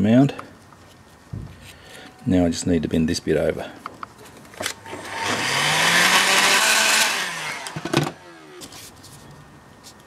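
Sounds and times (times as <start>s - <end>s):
heat gun fan motor: 4.6s - 8.8s.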